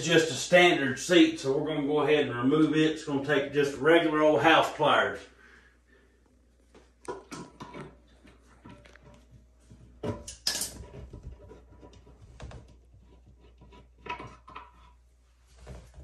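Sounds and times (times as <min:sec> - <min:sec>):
clicks and scrapes of toilet seat: 0:07.0 - 0:16.0.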